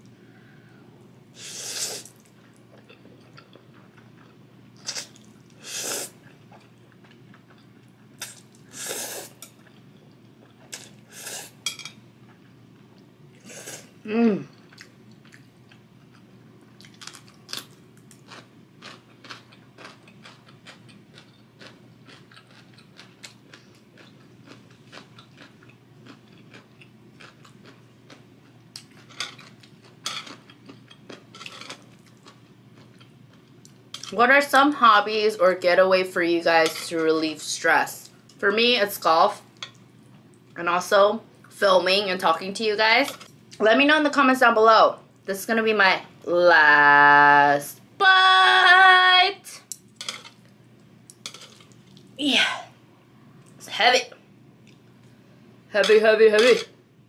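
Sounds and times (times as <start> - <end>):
person slurping noodles: 1.4 - 2.1, 8.7 - 9.4
soft chewing: 2.0 - 5.6, 6.2 - 8.7, 14.5 - 34.1, 49.7 - 52.2, 54.6 - 55.2.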